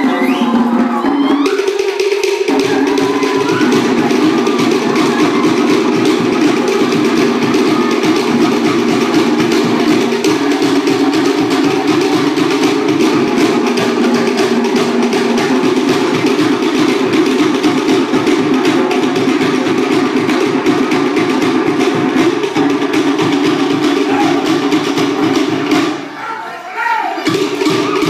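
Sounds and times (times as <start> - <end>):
wooden slit drums fast rhythm: 0.0 - 26.2, 27.2 - 28.0.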